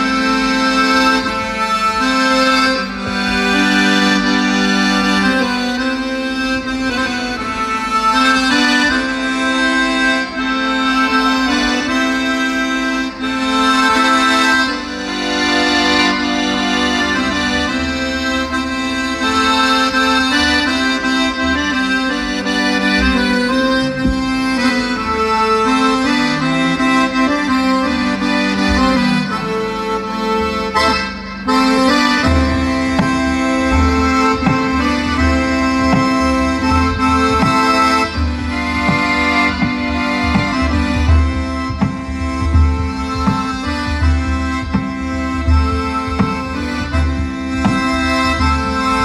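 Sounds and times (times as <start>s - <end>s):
accordion folk melody: 0.0s - 49.0s.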